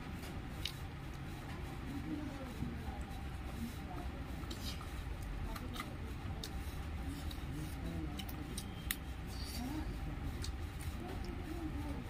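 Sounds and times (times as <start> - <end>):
steady low hum: 0.0 - 12.0
chewing: 0.6 - 1.2, 4.4 - 9.6, 10.3 - 11.4.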